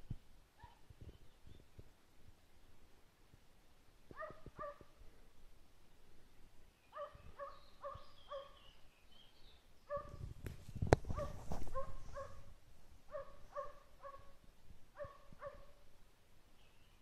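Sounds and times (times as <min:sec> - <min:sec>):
hound barking: 0:04.1 - 0:04.8, 0:06.9 - 0:08.6, 0:09.9 - 0:10.2, 0:11.1 - 0:12.5, 0:13.1 - 0:14.4, 0:15.0 - 0:15.8.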